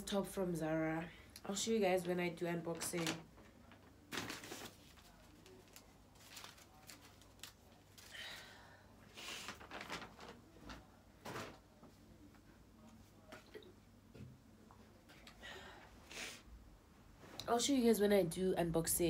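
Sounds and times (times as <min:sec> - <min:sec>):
paper bag rustling: 0:02.6 - 0:08.1, 0:09.2 - 0:11.6.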